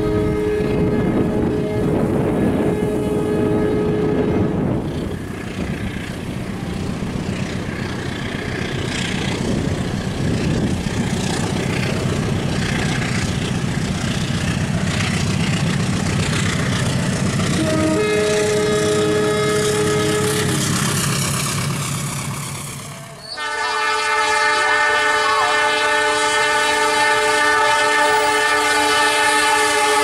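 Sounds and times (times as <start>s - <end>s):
train horn chord: 0.0s - 4.8s, 17.4s - 20.9s, 23.0s - 30.0s
locomotive engine rumbling: 0.0s - 30.0s.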